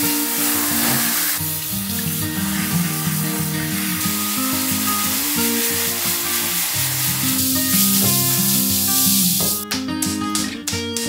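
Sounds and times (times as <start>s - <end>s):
water spraying from shower head: 0.0s - 9.6s
instrumental background music: 0.0s - 11.0s.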